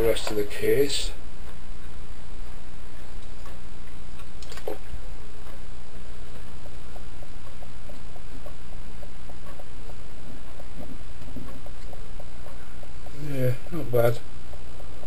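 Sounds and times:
low electrical hum: 0.0 - 15.0
sharp click: 4.2 - 4.8.

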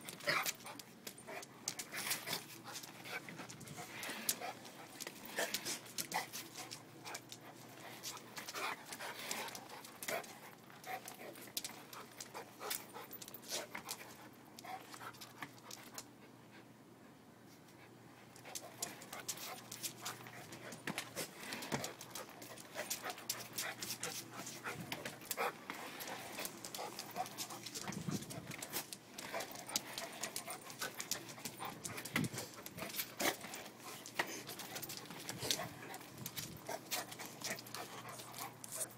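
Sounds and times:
dog panting: 0.1 - 16.7, 17.8 - 38.9.

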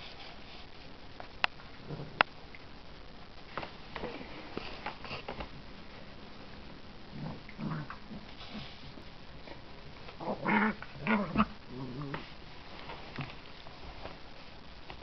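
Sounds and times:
dogs growling in play: 7.1 - 8.8, 10.0 - 12.4.

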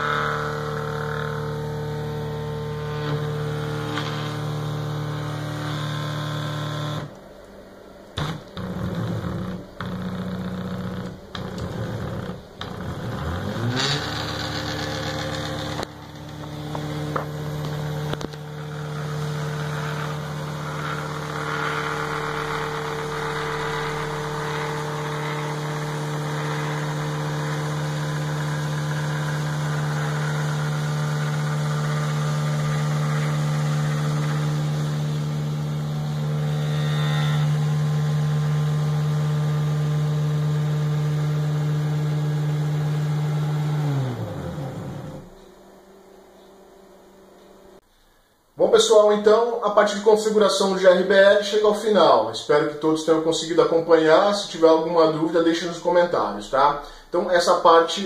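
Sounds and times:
stepper motors whining: 0.0 - 7.2, 8.2 - 45.7.

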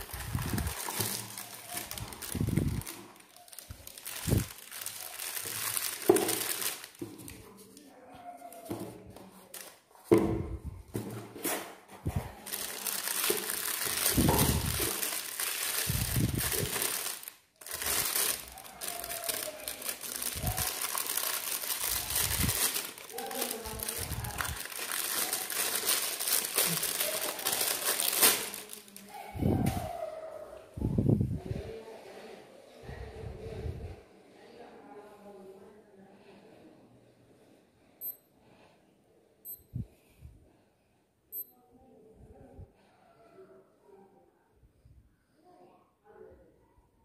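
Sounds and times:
plastic bag crinkling: 0.0 - 7.5, 9.2 - 10.0, 12.1 - 29.2.

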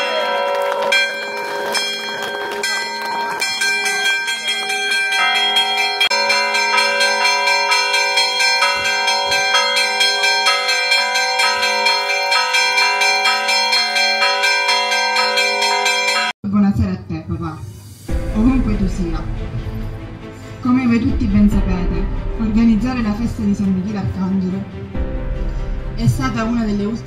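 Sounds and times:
church bells pealing: 0.0 - 16.4.

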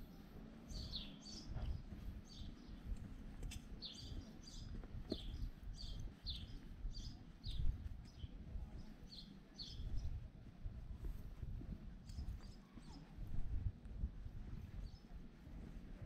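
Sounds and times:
small bird chirping: 0.1 - 10.2.

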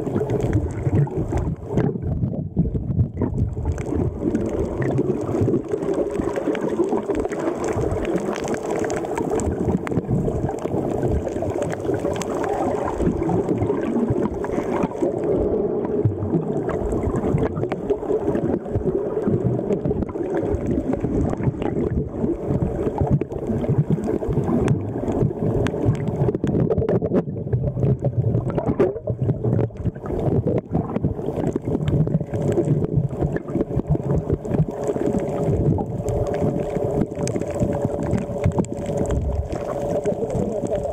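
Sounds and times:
muffled underwater water rush: 0.0 - 40.9
small pops and crackles: 0.0 - 40.9.

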